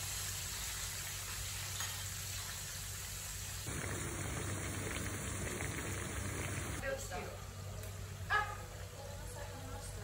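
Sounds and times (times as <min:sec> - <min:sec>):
food sizzling in hot oil: 0:00.0 - 0:06.8.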